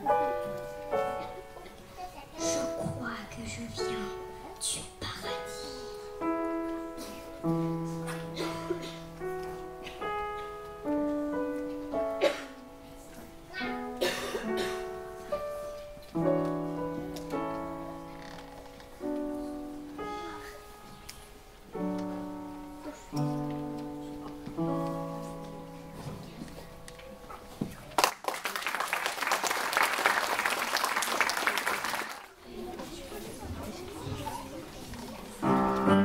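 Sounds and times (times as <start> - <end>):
piano playing slow chords: 0.0 - 27.6, 35.4 - 36.0.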